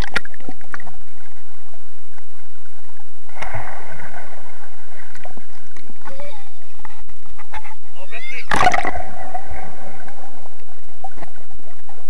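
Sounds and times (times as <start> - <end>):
muffled underwater splash: 0.0 - 12.0
rushing bubbles hissing: 3.3 - 6.1, 8.5 - 11.5.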